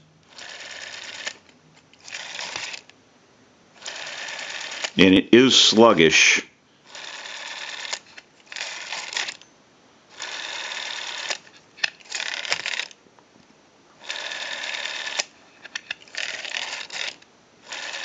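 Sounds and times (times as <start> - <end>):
rotary dial whirring back: 0.3 - 1.4, 2.0 - 2.9, 3.8 - 5.0, 6.9 - 9.4, 10.2 - 11.4, 12.1 - 12.9, 14.0 - 18.0.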